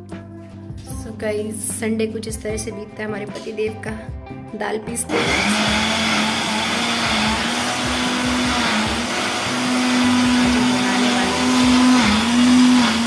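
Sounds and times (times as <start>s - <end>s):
mixer grinder running: 5.1s - 13.0s.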